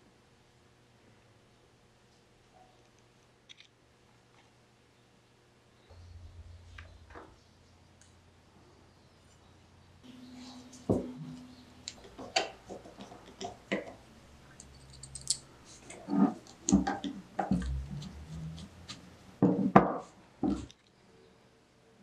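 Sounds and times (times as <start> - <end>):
metal parts clicking and knocking: 11.8 - 17.7.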